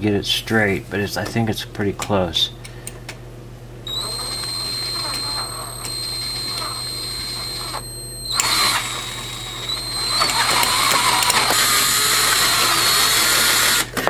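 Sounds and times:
handheld drill whining: 0:03.9 - 0:14.0.

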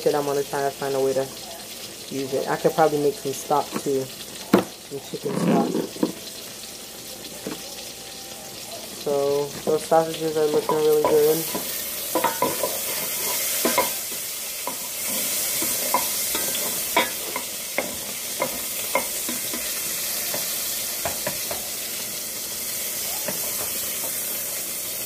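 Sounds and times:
sausage sizzling in a pan: 0:00.0 - 0:25.0
spoon clinking and scraping pan: 0:10.4 - 0:21.8.

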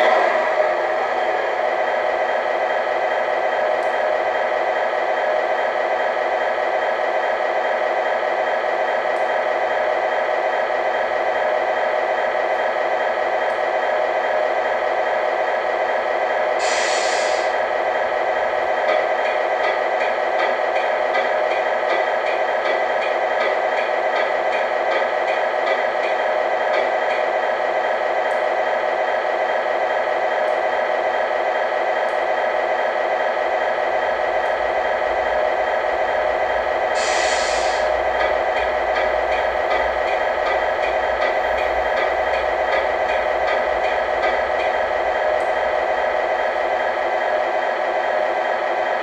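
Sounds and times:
air hiss: 0:16.6 - 0:17.6, 0:37.0 - 0:38.0.

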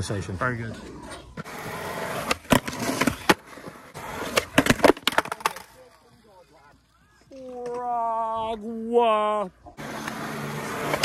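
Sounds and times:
skateboard wheels rolling on concrete: 0:00.0 - 0:11.0
skateboard clattering: 0:00.7 - 0:07.9, 0:09.8 - 0:11.0.

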